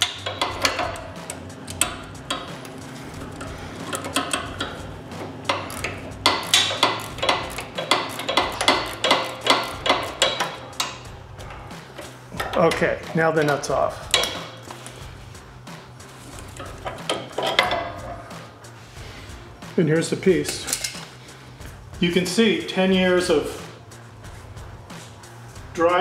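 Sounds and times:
ratchet clicking: 0.0s - 13.2s, 14.0s - 18.1s
tools clinking: 0.0s - 14.9s, 16.4s - 18.1s, 20.4s - 21.1s.

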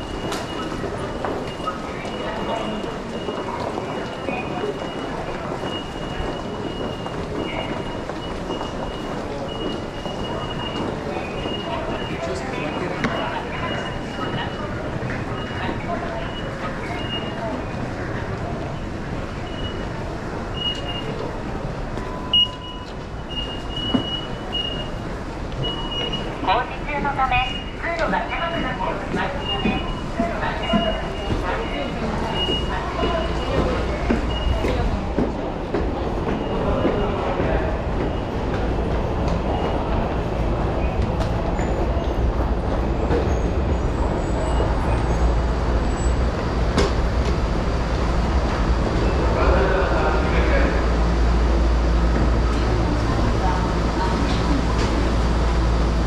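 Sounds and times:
crowd noise: 0.0s - 56.0s
metro platform rumble: 0.0s - 56.0s
ticket gate beeps: 22.0s - 25.0s.

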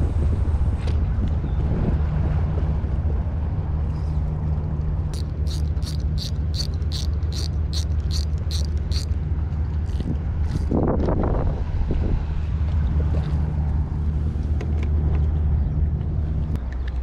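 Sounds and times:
wind buffeting microphone: 0.0s - 4.4s, 9.8s - 16.6s
fishing reel clicks: 5.2s - 9.2s.

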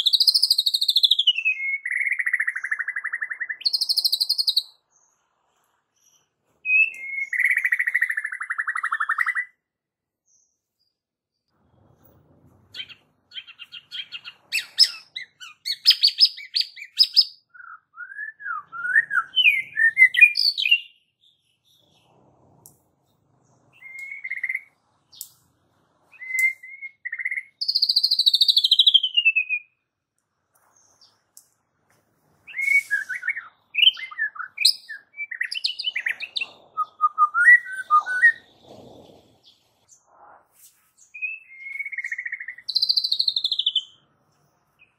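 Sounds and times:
songbird singing trills and whistles: 0.0s - 5.2s, 6.0s - 9.6s, 12.7s - 22.2s, 23.5s - 25.4s, 26.0s - 29.9s, 32.4s - 40.1s, 41.0s - 44.0s.

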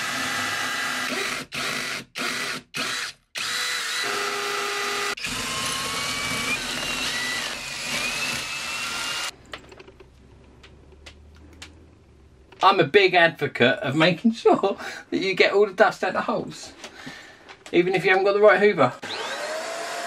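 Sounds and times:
cordless drill boring into wall: 0.0s - 9.3s, 19.0s - 20.0s.

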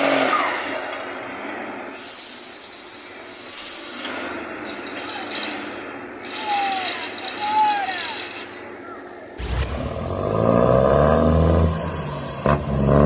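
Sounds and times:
air brakes hissing: 1.8s - 9.7s.

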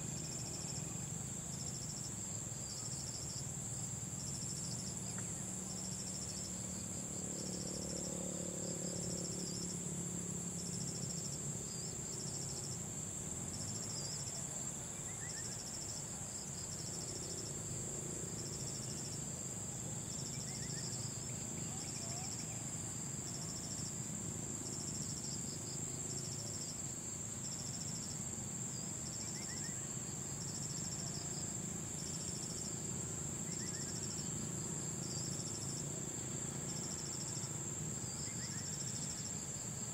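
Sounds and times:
insect high-pitched trill: 24.7s - 32.7s
insect pulsing call: 29.1s - 31.4s, 33.4s - 34.4s, 38.2s - 39.6s.

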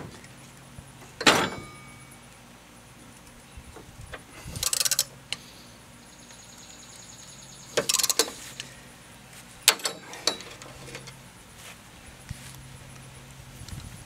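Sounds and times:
ratchet wrench clicking: 4.5s - 5.1s, 7.8s - 8.7s.

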